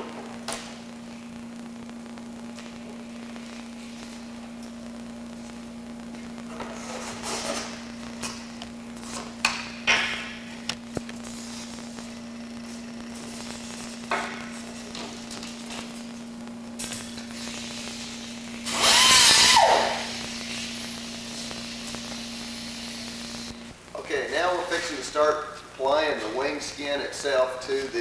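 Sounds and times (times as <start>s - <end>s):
steady electrical hum: 0.0s - 28.0s
air disc cutter whining: 5.4s - 23.8s.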